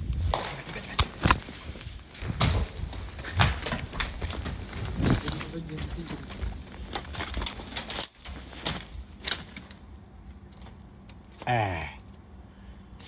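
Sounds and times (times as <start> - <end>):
footsteps crunching dry grass: 0.0 - 9.8.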